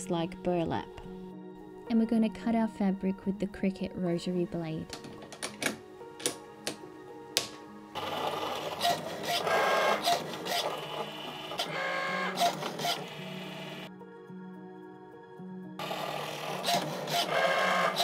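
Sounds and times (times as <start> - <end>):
light background music: 0.0 - 18.0
cutting machine whirring: 8.0 - 13.9, 15.8 - 18.0.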